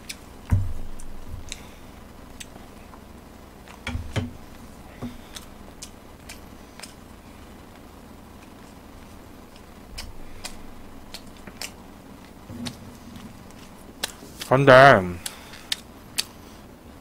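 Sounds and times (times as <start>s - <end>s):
dull knocks: 0.5s - 1.5s, 3.8s - 4.4s.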